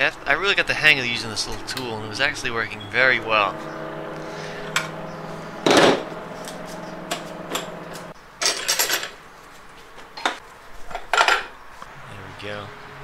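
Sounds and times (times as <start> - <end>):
steady hum: 0.0 - 8.2.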